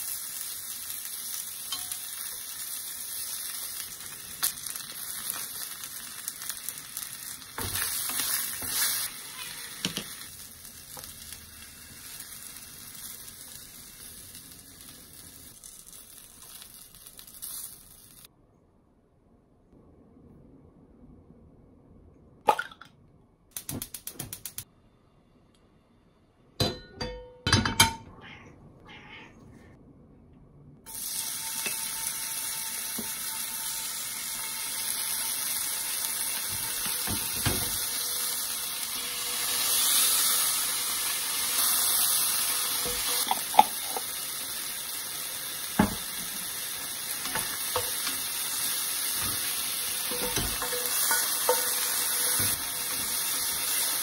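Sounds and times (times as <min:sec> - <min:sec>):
garlic sizzling in hot oil: 0:00.0 - 0:18.3, 0:30.9 - 0:54.0.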